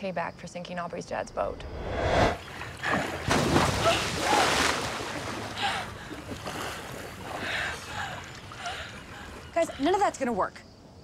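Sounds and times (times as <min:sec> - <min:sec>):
water sloshing and splashing: 0:02.3 - 0:10.2.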